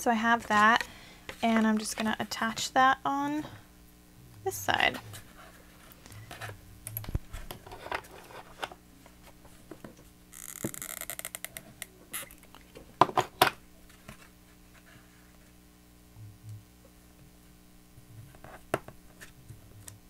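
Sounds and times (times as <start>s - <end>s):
taps scrapes and rustles: 0.2s - 2.7s, 5.0s - 10.7s.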